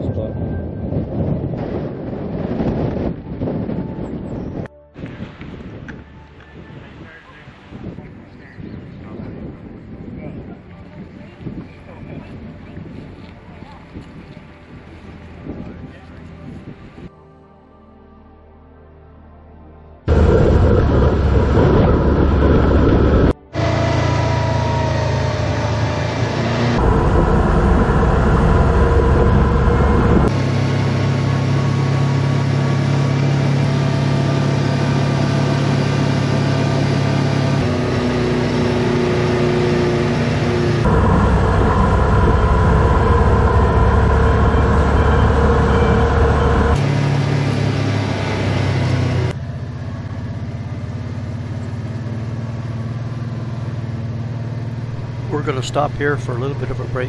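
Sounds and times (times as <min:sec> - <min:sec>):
utility vehicle engine running: 0:20.1 - 0:57.0.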